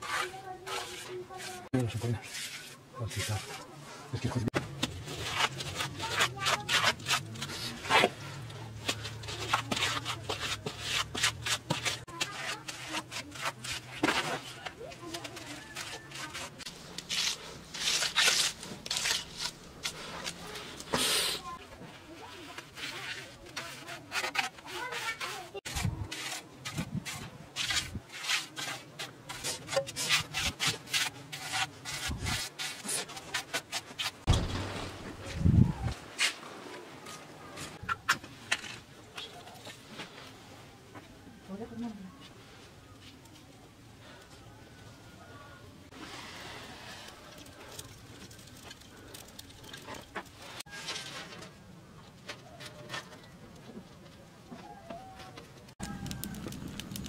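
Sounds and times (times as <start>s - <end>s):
trowel scraping wet mud plaster: 0.0s - 3.7s, 4.8s - 21.4s, 22.2s - 34.9s
wooden float scraping mud: 0.0s - 3.7s, 22.2s - 35.6s.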